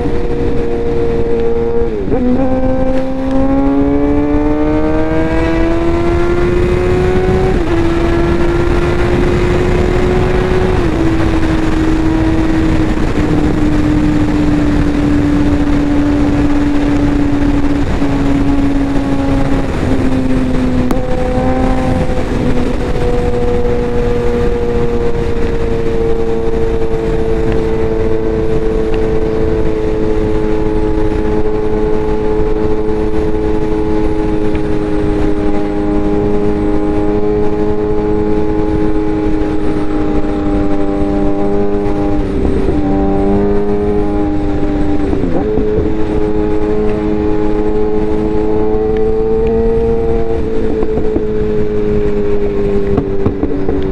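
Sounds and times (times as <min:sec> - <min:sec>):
motorcycle engine revving: 0:00.0 - 0:53.9
wind rush on microphone: 0:00.0 - 0:53.9.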